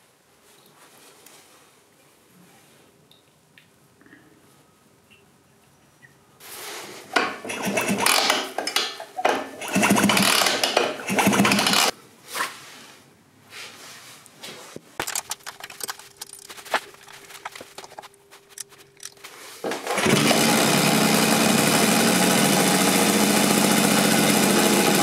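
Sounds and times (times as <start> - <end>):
spanner clicking on engine casing: 15.0 - 19.2
metallic clattering and scraping: 15.0 - 19.4.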